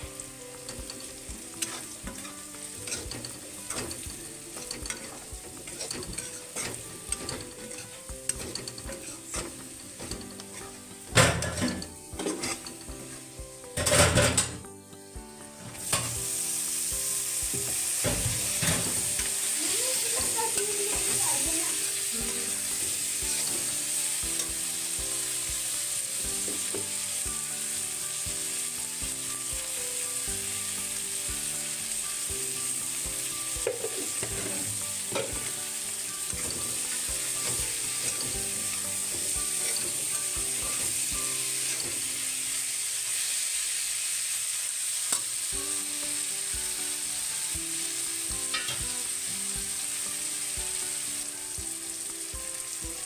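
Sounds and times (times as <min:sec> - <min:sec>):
vegetables sizzling in hot oil: 0:00.0 - 0:53.0
metal spatula scraping and clinking: 0:00.7 - 0:13.1, 0:33.7 - 0:35.5, 0:36.2 - 0:41.0, 0:41.7 - 0:42.0, 0:48.5 - 0:48.8.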